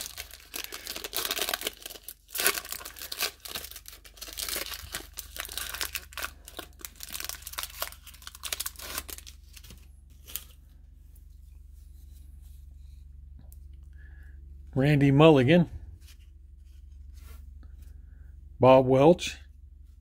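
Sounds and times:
foil wrapper tearing and crinkling: 0.0 - 10.6.

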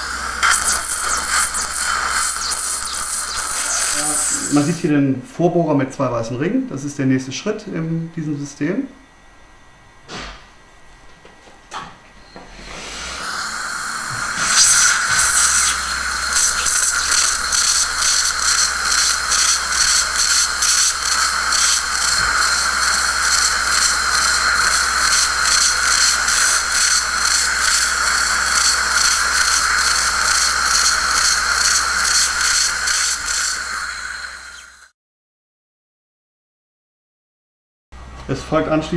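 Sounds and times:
surgical drill high whine: 0.0 - 4.9, 12.2 - 34.9.

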